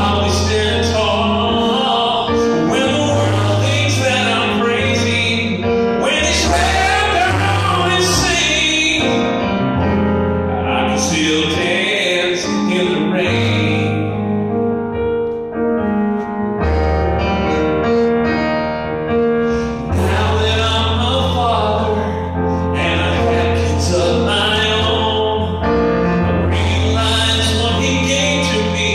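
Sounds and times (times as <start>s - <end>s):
man singing: 0.0s - 9.6s, 10.5s - 14.5s, 19.5s - 28.9s
keyboard piano chords: 0.0s - 28.9s.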